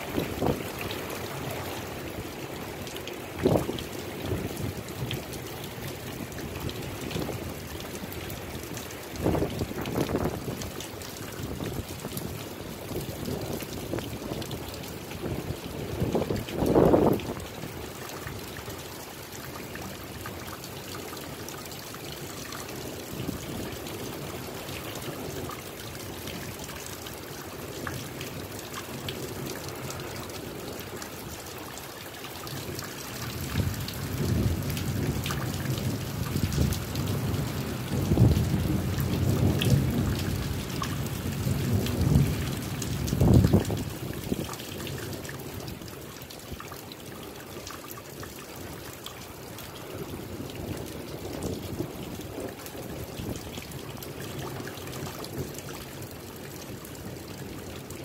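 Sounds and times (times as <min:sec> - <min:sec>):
steady rain falling: 0:00.0 - 0:58.0
thunder rumbling: 0:33.4 - 0:43.9.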